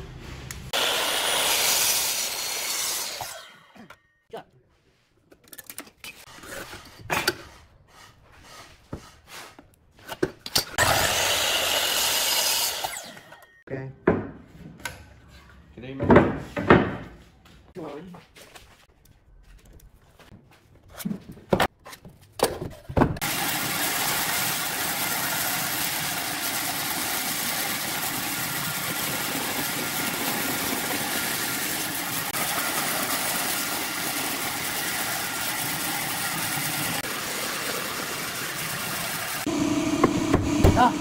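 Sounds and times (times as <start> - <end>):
bandsaw cutting wood: 0.7 - 3.6, 10.8 - 13.4, 23.2 - 38.7.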